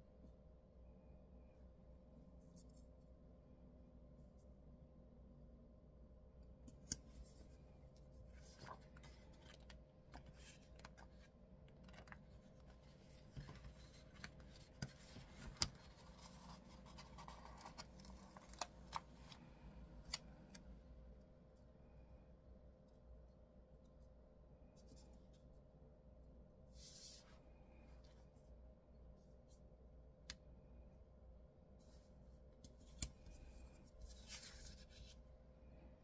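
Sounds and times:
faint steady hum: 0.0 - 36.0
paper rustling: 8.2 - 19.5, 32.8 - 35.2.

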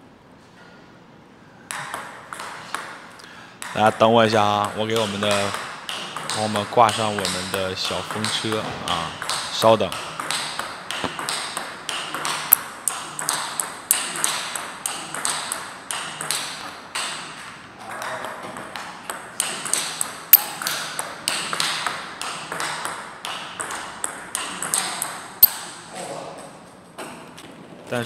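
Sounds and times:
table tennis ball clicks: 9.2 - 17.1.

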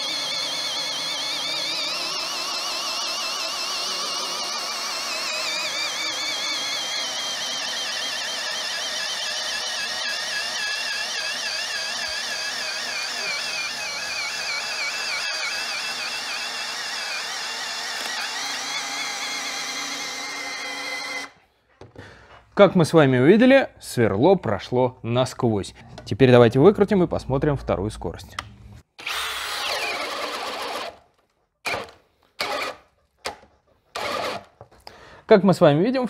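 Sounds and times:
drill motor whine under load: 0.0 - 21.4, 29.0 - 31.0, 34.0 - 34.5.

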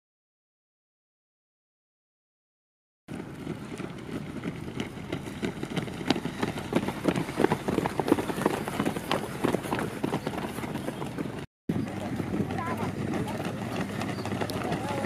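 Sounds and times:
runners' footfalls on dirt: 3.1 - 15.0.

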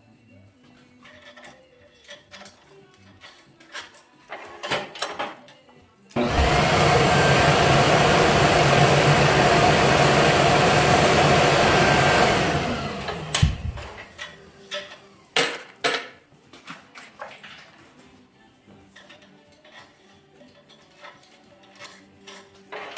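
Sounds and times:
tools clicking and knocking: 0.8 - 5.8, 13.3 - 16.2, 16.8 - 18.1, 18.9 - 22.9
workshop machine whirring: 6.2 - 15.3, 22.6 - 22.9.

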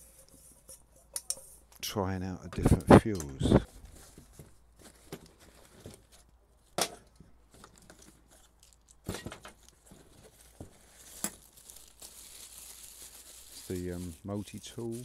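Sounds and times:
fabric stuff sack rustling: 10.2 - 15.0.

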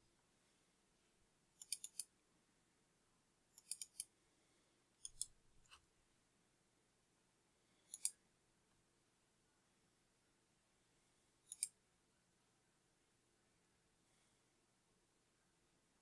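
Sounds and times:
computer mouse clicks: 5.0 - 5.3.

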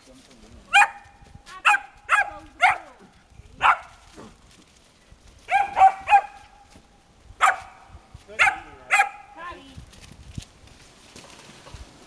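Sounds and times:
dog barking sharply: 5.5 - 6.4, 7.4 - 7.8, 8.4 - 9.3.

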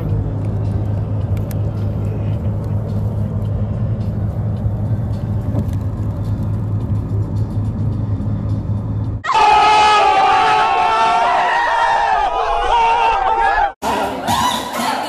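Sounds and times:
car road and engine noise: 0.0 - 9.4.

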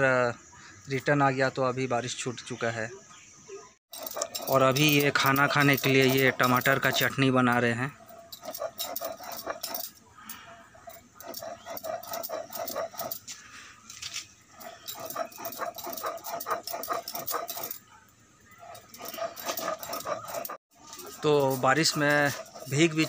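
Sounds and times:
stone roller scraping grinding stone: 3.9 - 17.9, 18.6 - 23.0.

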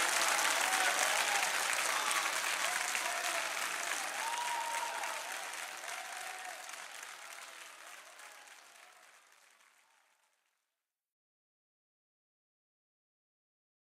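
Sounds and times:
crowd applauding: 0.0 - 10.5.

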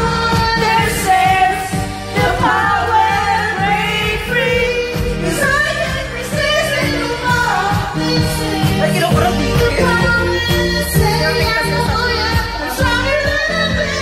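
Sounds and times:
person singing into microphone: 0.0 - 14.0
pop backing track with beat: 0.0 - 14.0.

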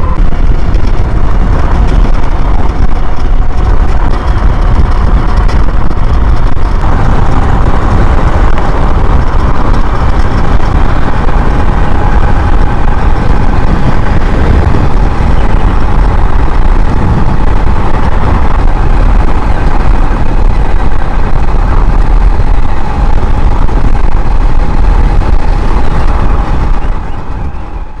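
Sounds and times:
electric motor whine: 0.0 - 28.0
wind buffeting microphone: 0.0 - 28.0.

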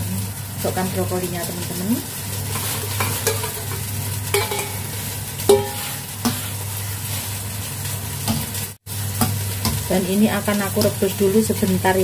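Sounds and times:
boiling water bubbling: 0.0 - 12.0
metal utensil knocking on wok: 3.0 - 4.9, 5.5 - 6.4.

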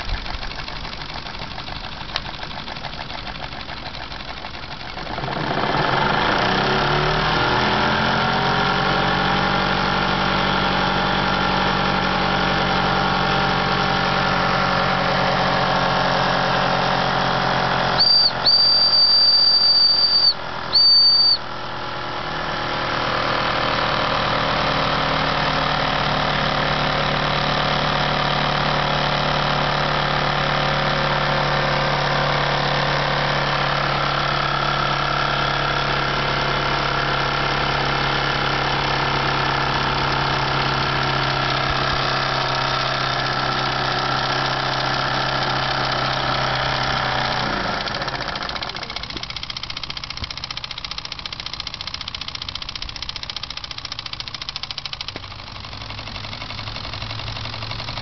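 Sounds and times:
toy steam engines running: 0.0 - 7.1, 17.6 - 21.6, 37.8 - 58.0
high steam whistle: 18.0 - 21.5.

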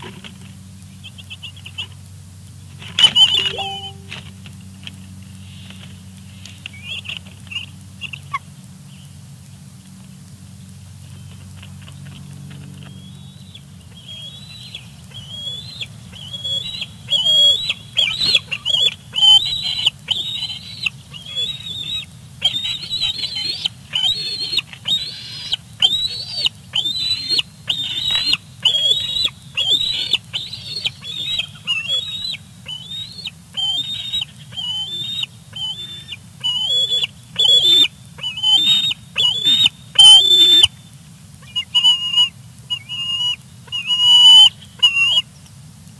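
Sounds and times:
young eagle squealing: 16.6 - 40.7, 41.5 - 45.2.

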